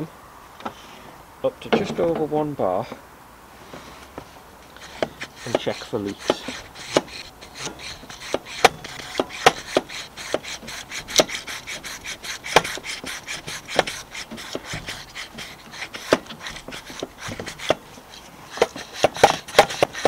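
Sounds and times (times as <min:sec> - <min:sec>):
hand pump clicking and creaking: 0:04.7 - 0:20.0.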